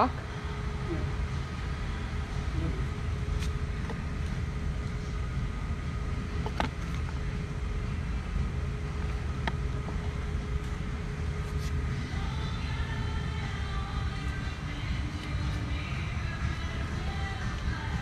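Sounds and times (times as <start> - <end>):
faint constant hum: 0.0 - 18.0
low indoor rumble: 0.0 - 18.0.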